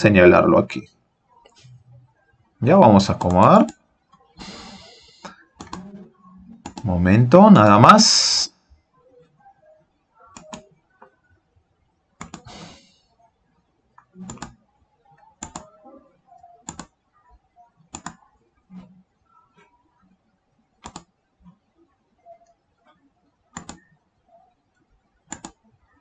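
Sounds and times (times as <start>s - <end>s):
computer mouse clicking: 3.1s - 5.9s, 6.6s - 6.9s, 10.3s - 10.7s, 12.2s - 12.9s, 13.9s - 14.6s, 15.4s - 15.7s, 16.6s - 17.0s, 17.8s - 18.2s, 20.8s - 21.1s, 23.5s - 24.0s, 25.3s - 25.7s.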